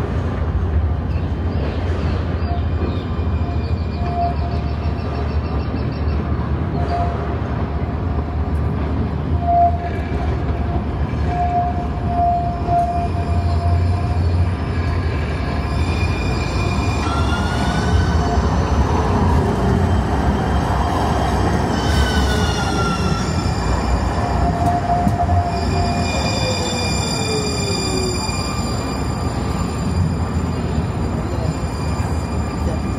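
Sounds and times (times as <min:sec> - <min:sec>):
steel wheels rumbling on rail: 0:00.0 - 0:32.9
high wheel squeal: 0:09.3 - 0:10.4, 0:11.1 - 0:32.9.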